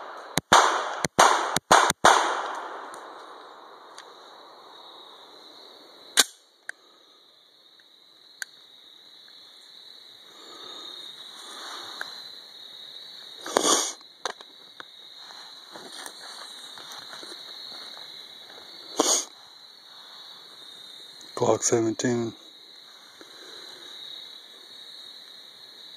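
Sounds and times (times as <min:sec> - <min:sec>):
rustling and scraping: 0:15.2 - 0:19.4.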